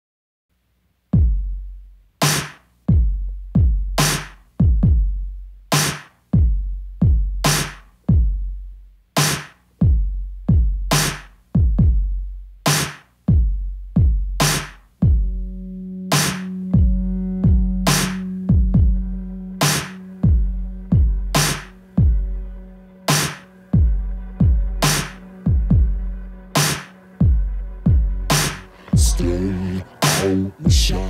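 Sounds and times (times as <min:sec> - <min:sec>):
booming kick drum: 0:01.2 - 0:01.6, 0:02.9 - 0:04.0, 0:04.6 - 0:05.2, 0:06.4 - 0:07.4, 0:08.1 - 0:08.5, 0:09.8 - 0:11.0, 0:11.6 - 0:12.2, 0:13.3 - 0:15.4, 0:16.8 - 0:19.2, 0:20.2 - 0:22.4, 0:23.8 - 0:26.2, 0:27.2 - 0:29.4, 0:30.7 - 0:31.0
sharp snare hits: 0:02.2 - 0:02.7, 0:05.8 - 0:06.2, 0:09.2 - 0:09.6, 0:12.7 - 0:13.1
low sustained note: 0:15.4 - 0:31.0.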